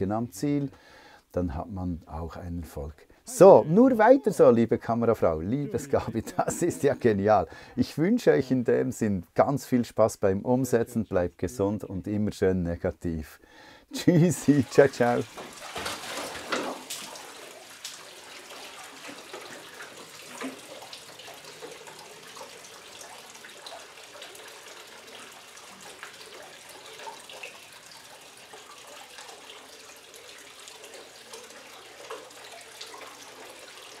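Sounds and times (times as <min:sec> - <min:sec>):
tap water running into metal bucket: 0:14.1 - 0:34.0
dog splashing in water: 0:14.7 - 0:24.4.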